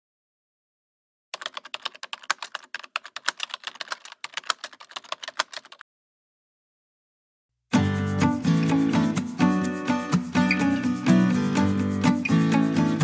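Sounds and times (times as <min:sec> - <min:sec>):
music: 0:07.7 - 0:13.0.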